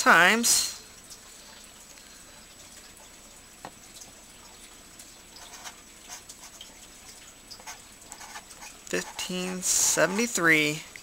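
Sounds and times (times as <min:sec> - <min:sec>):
low steady hiss: 0:00.0 - 0:11.0
marker scratching on paper: 0:05.4 - 0:06.6, 0:07.6 - 0:10.4.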